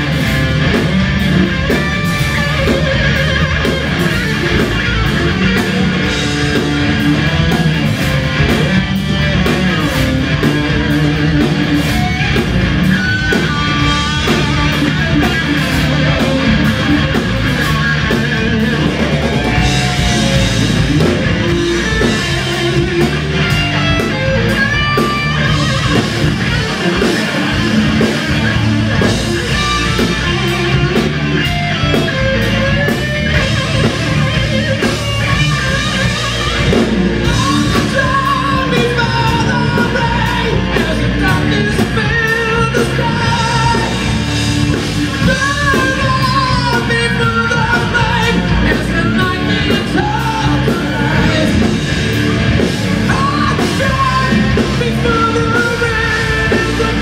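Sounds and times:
drums: 0:00.0 - 0:57.0
electric guitars: 0:00.0 - 0:57.0
person singing lead vocals: 0:09.4 - 0:31.1, 0:34.8 - 0:57.0.

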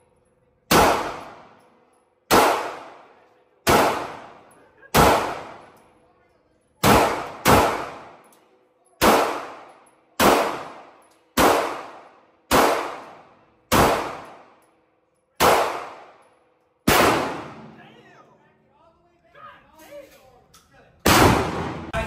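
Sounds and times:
handgun shots echoing: 0:00.7 - 0:01.6, 0:02.3 - 0:05.8, 0:06.8 - 0:08.4, 0:09.0 - 0:14.6, 0:15.4 - 0:17.8, 0:21.0 - 0:22.0.

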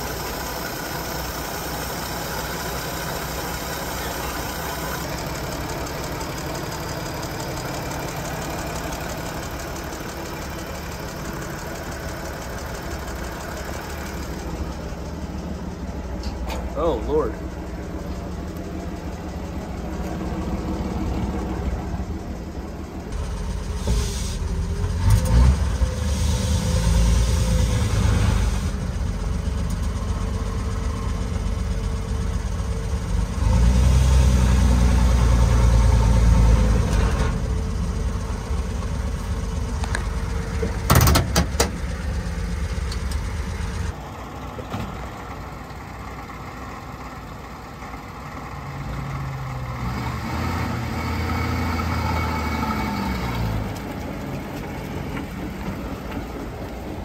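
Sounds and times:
car engine running: 0:00.0 - 0:26.0, 0:27.0 - 0:49.9
sharp engine knocks: 0:40.5 - 0:41.9.

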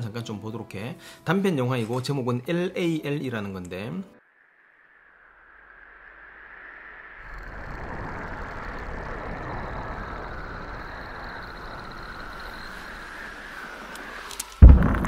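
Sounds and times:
faint high whine: 0:04.2 - 0:14.7.

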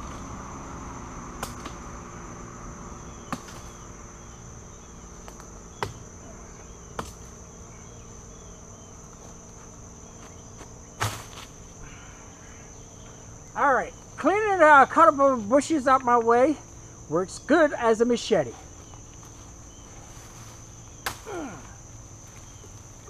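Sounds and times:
insects chirring: 0:00.0 - 0:23.0
knife chopping through branches: 0:01.4 - 0:01.9, 0:03.2 - 0:03.8, 0:05.2 - 0:06.1, 0:06.8 - 0:07.4, 0:11.0 - 0:11.6, 0:20.3 - 0:21.6.

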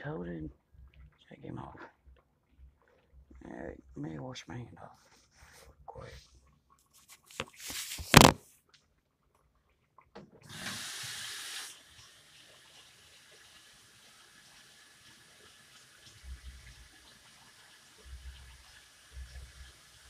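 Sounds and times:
water splashing at sink: 0:09.4 - 0:20.0.

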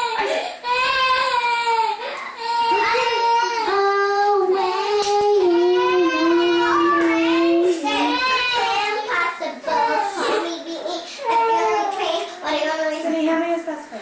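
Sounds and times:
girl singing into a microphone: 0:02.6 - 0:12.6.

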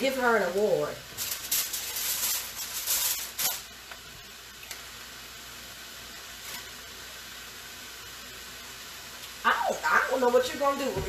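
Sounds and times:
faint steady hiss: 0:00.0 - 0:11.0
aluminium foil crinkling: 0:00.5 - 0:04.0.

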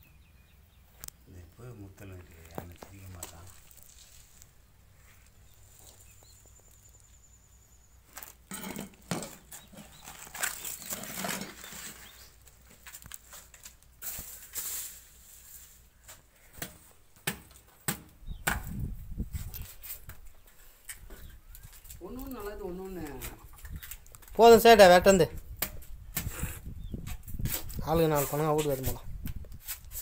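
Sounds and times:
husks rustling and scraping: 0:02.0 - 0:07.2, 0:08.1 - 0:16.5
knife chopping fruit husks: 0:16.6 - 0:18.8.

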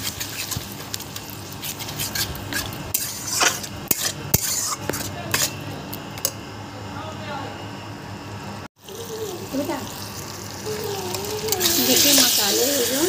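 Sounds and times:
paste frying: 0:00.0 - 0:06.4, 0:08.8 - 0:13.0
metal spatula scraping a pan: 0:01.6 - 0:05.6.

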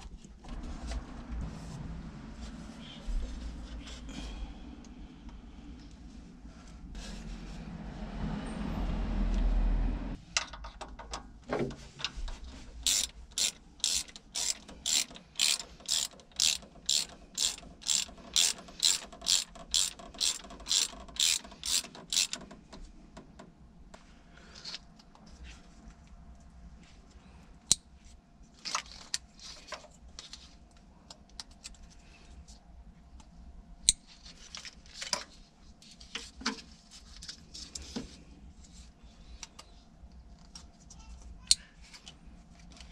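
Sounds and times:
low rumble: 0:00.4 - 0:10.2
tools clicking and knocking: 0:10.4 - 0:23.5
ratchet wrench clicking: 0:12.8 - 0:22.6.

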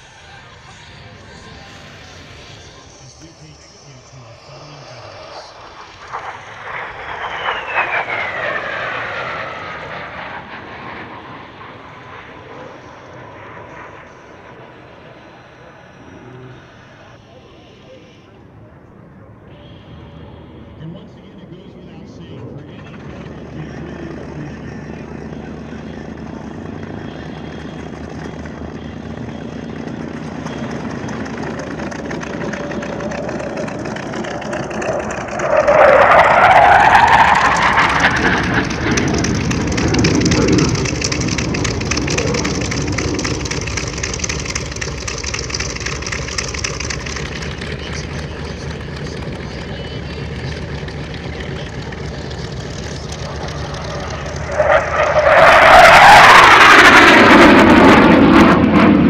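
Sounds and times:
jet engine roar in flight: 0:00.0 - 0:59.0
rising jet whine: 0:00.0 - 0:59.0.

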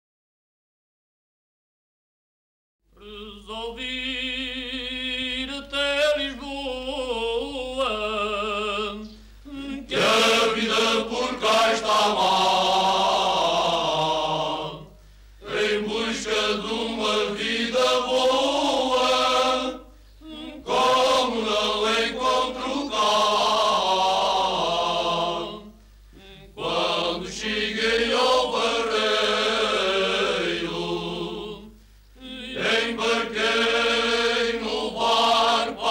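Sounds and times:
single voice singing: 0:02.9 - 0:35.9
male choir singing: 0:03.0 - 0:35.9
singers breathing: 0:09.2 - 0:09.5, 0:14.9 - 0:15.4, 0:19.8 - 0:20.3, 0:25.8 - 0:26.2, 0:31.7 - 0:32.2.

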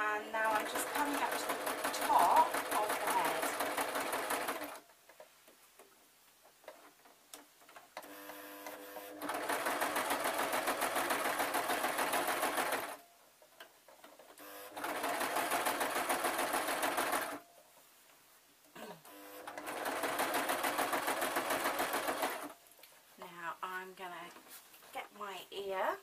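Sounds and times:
sewing machine stitching: 0:00.4 - 0:04.8, 0:08.0 - 0:13.0, 0:14.7 - 0:17.4, 0:19.4 - 0:22.5.

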